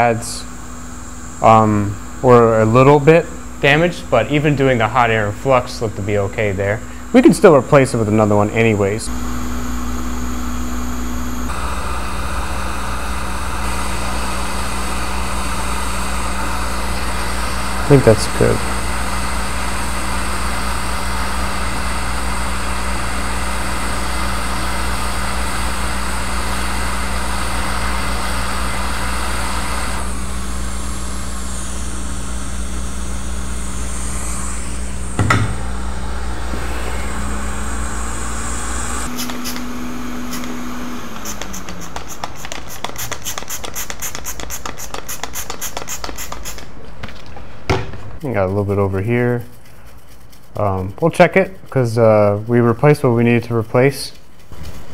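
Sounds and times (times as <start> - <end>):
hot air blower hissing: 0.0 - 46.7
single knock: 35.2 - 35.6.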